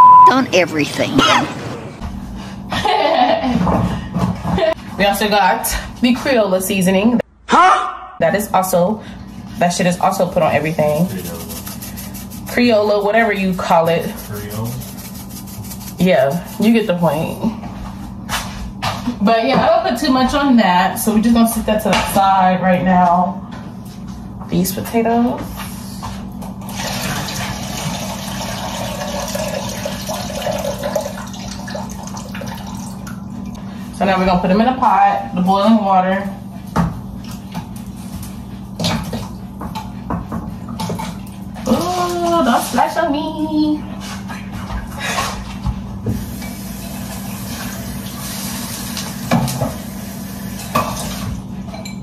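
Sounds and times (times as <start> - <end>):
water running: 8.6 - 17.4, 26.6 - 34.7, 40.7 - 43.8, 46.1 - 51.4.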